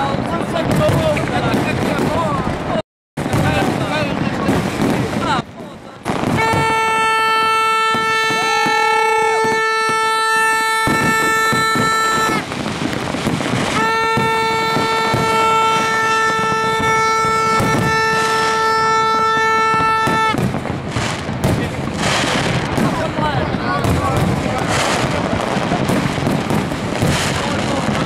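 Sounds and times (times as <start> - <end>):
fireworks popping and crackling: 0.0 - 28.0
higher horn: 6.4 - 12.5, 13.6 - 20.4
plastic horn blasts: 6.4 - 12.5, 13.7 - 20.4.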